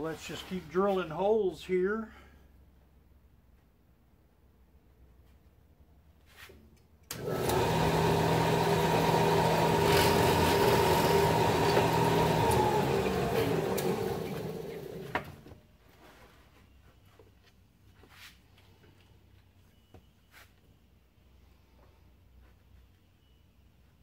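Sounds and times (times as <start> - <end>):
drill bit boring plywood: 7.1 - 15.5
drill press motor hum: 7.1 - 15.5.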